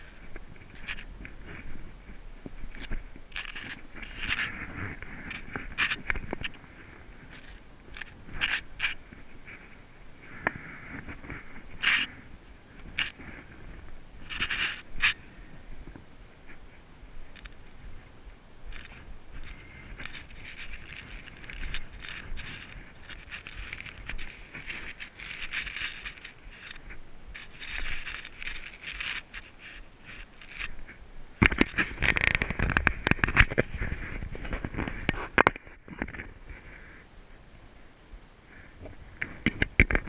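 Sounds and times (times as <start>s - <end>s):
scattered clicks: 2.7s - 6.6s, 7.3s - 9.0s, 12.8s - 13.2s, 18.7s - 30.8s
boots scraping on rock: 18.7s - 30.8s.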